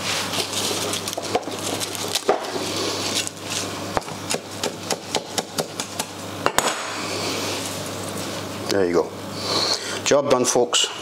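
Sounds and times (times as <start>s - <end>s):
knife chopping on wooden board: 4.0s - 6.9s.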